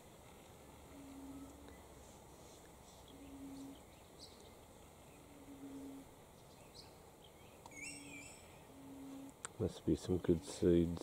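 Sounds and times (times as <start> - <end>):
small birds chirping: 2.6 - 10.8.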